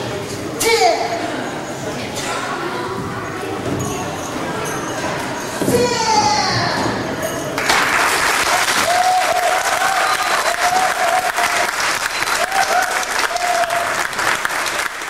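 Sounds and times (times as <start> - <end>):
audience applauding: 7.6 - 15.0.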